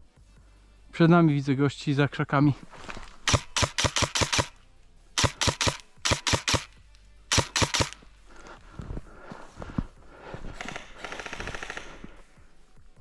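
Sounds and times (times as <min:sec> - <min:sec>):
airsoft rifle shots: 0:03.3 - 0:04.6, 0:05.2 - 0:06.7, 0:07.3 - 0:08.0, 0:10.6 - 0:12.0.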